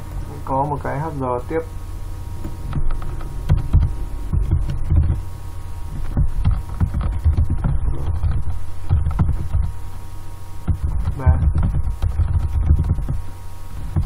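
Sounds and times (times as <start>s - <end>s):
steady electrical hum: 0.0s - 14.0s
computer keyboard typing: 6.0s - 9.7s.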